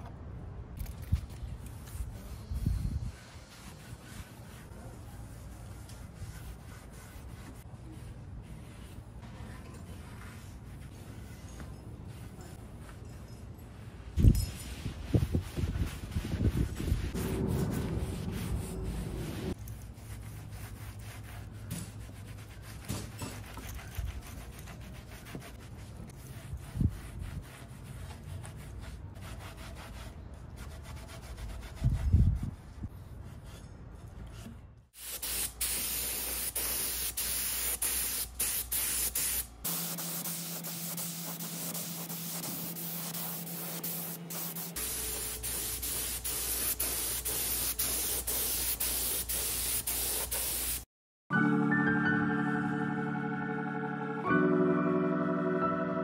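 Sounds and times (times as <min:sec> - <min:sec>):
spray gun hissing: 0:35.0 - 0:50.9.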